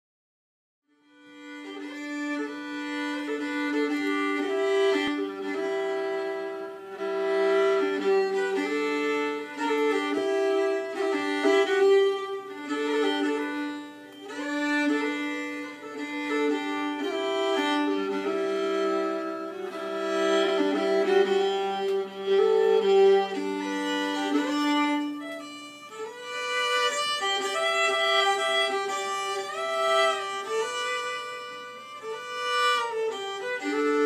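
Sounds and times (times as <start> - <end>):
solo violin bowing a tune: 0.9 - 34.0.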